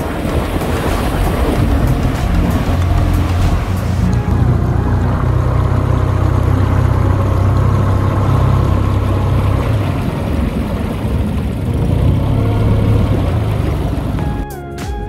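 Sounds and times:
outboard motor running: 0.0 - 14.6.

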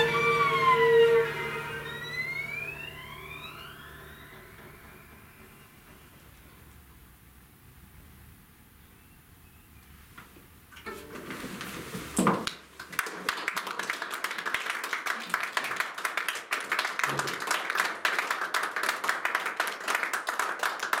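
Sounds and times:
loud call from a voice: 0.0 - 2.6
audience applauding: 0.0 - 6.4, 12.8 - 21.0.

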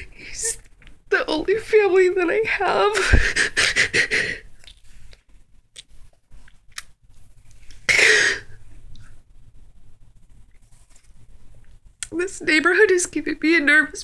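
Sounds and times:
woman sobbing: 2.8 - 4.4.

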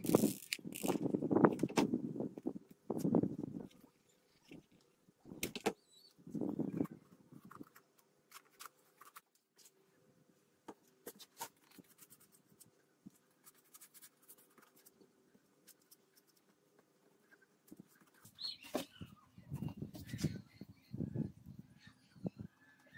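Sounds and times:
hands handling cardboard: 10.6 - 19.0.

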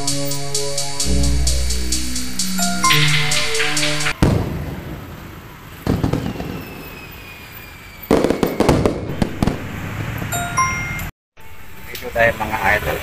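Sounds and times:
intro music: 0.0 - 4.2
fireworks crackling and popping: 4.2 - 10.3
thin falling whistle: 6.2 - 9.1.

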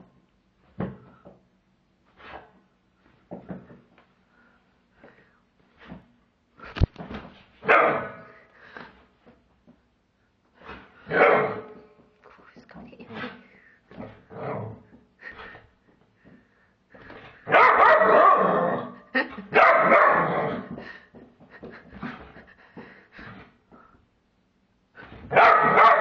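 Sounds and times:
dog barking: 7.6 - 8.4, 11.1 - 11.8, 17.5 - 18.8, 19.5 - 20.6, 25.3 - 26.0.

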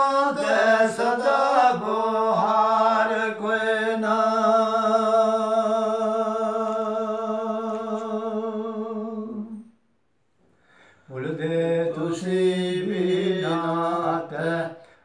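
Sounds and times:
man singing unaccompanied: 0.0 - 9.7, 11.1 - 15.0.

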